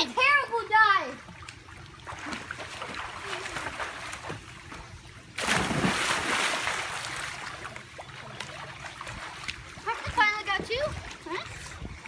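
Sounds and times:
pool water splashing: 0.0 - 12.0.

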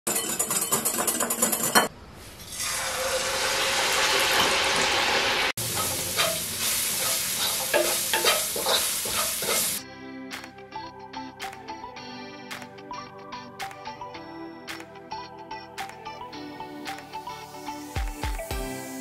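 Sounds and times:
deep-frying hiss in oil: 2.2 - 9.8
food sizzling in a pan: 2.2 - 9.8, 17.2 - 19.0
spatula scraping pan: 5.6 - 9.8.

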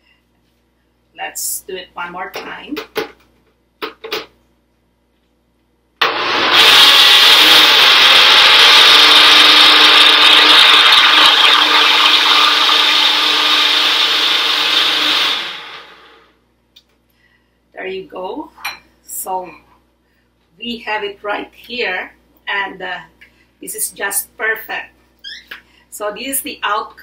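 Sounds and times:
blender motor running: 6.0 - 16.3.

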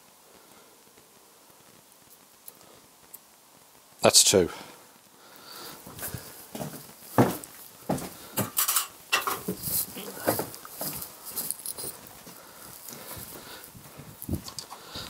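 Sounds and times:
metal tools clinking and knocking: 8.4 - 9.8.

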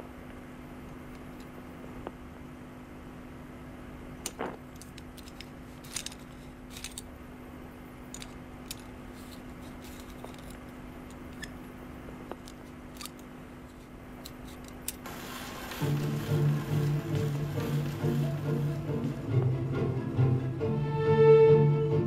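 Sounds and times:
faint steady hum: 0.0 - 22.0
tone arm metallic clicks: 8.1 - 13.3.

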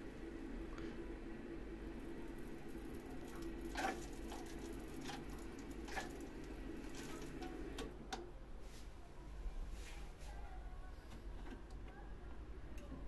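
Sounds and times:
boiler humming: 0.0 - 9.6.

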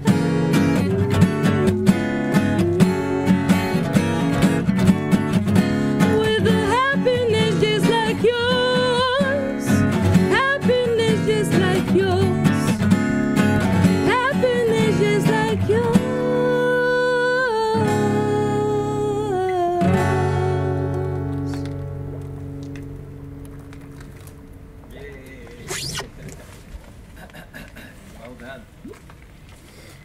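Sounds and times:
acoustic guitar strumming: 0.0 - 24.9
woman singing: 0.1 - 3.1, 6.0 - 12.8, 14.0 - 21.4.

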